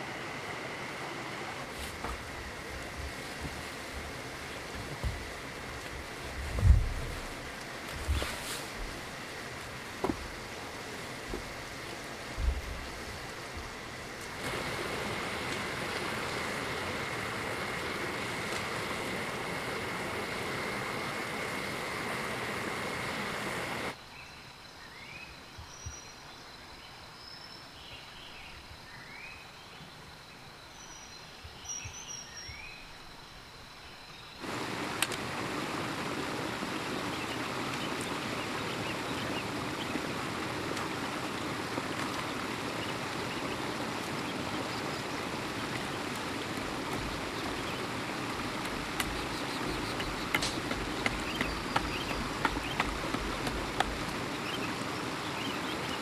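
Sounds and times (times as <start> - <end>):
stream water rushing: 0.0 - 24.0, 34.4 - 56.0
birds chirping: 34.1 - 56.0.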